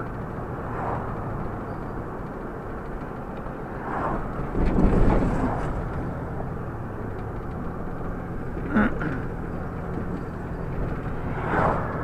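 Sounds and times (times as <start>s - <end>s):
passing car whoosh: 0.0s - 1.3s, 3.8s - 6.0s, 10.9s - 12.0s
car cabin engine and tyre noise: 0.0s - 12.0s.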